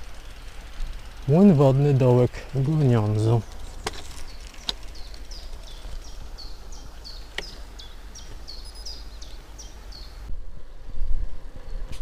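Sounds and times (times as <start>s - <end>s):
low wind rumble: 0.0s - 12.0s
small bird calling: 2.8s - 10.3s
sharp clicks: 7.3s - 7.6s.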